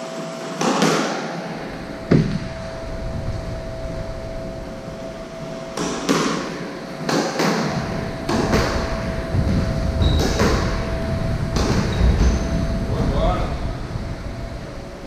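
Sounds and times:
squash ball cracks: 5.8s - 9.1s
sneaker squeaking on wooden floor: 7.6s - 12.8s.

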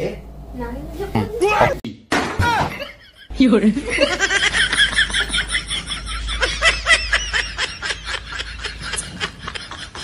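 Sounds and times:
high-pitched cackling laughter: 4.0s - 10.0s.

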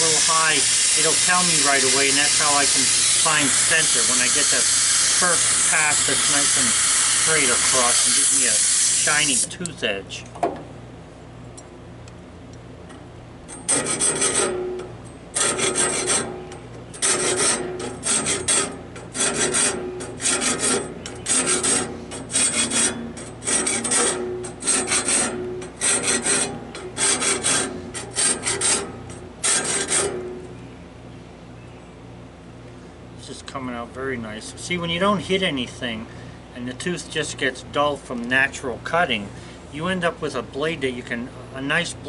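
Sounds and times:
hand file scraping saw teeth: 0.0s - 9.6s, 13.6s - 30.4s.

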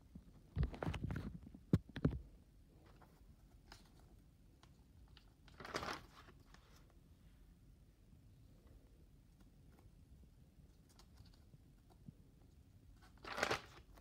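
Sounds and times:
notebook pages rustling: 5.2s - 6.9s, 13.0s - 14.0s.

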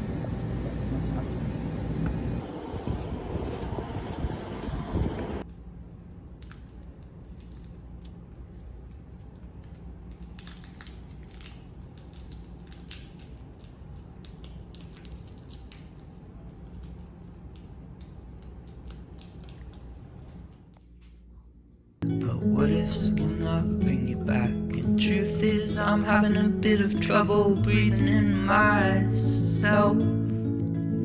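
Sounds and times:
low hum: 0.0s - 10.6s.

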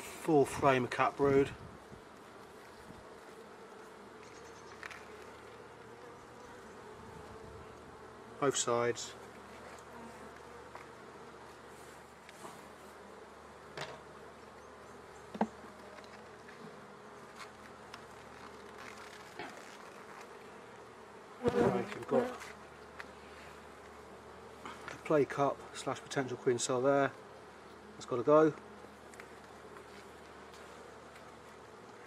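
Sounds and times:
honeybees buzzing: 0.0s - 32.0s.

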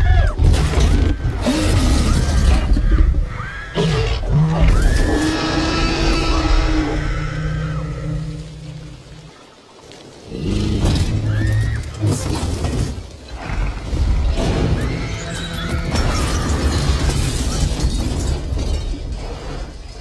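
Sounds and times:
glass shattering: 15.3s - 19.2s.

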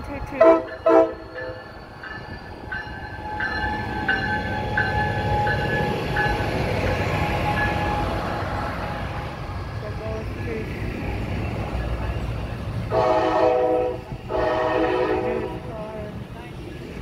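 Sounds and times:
locomotive bell ringing: 0.0s - 8.3s
train engine and wheels rumbling: 0.0s - 17.0s.

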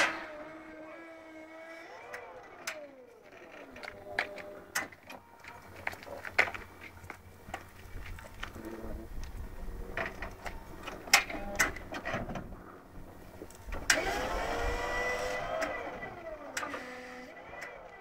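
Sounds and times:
hydraulic lift motor whining: 0.0s - 5.3s, 13.7s - 18.0s.

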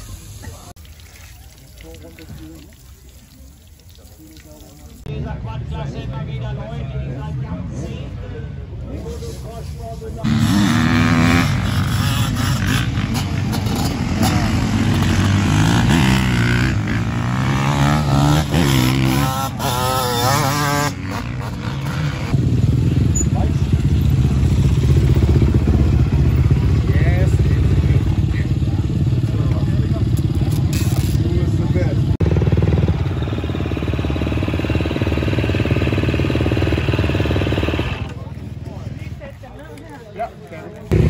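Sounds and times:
motocross engines revving: 10.2s - 38.8s.

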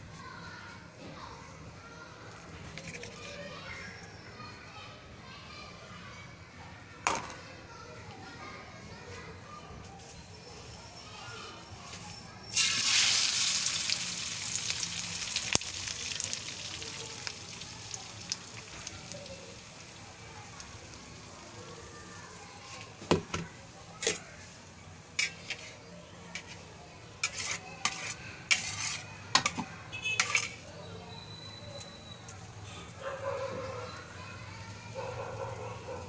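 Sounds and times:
vegetables sizzling in hot oil: 12.5s - 23.0s
utensil scraping a pan: 25.2s - 26.6s, 27.2s - 30.7s.

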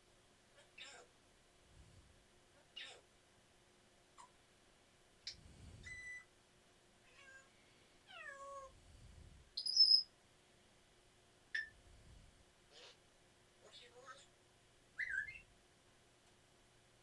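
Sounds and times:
parrot chirping and whistling: 5.8s - 6.2s, 9.6s - 10.1s, 11.5s - 11.8s, 15.0s - 15.5s.

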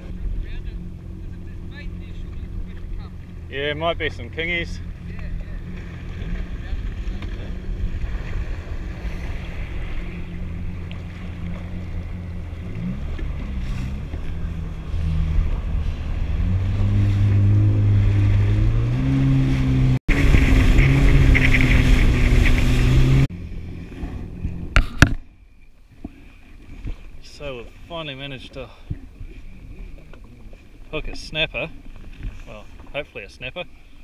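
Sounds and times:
jet ski engine revving: 0.0s - 25.2s
wind and water rushing: 0.0s - 25.3s.

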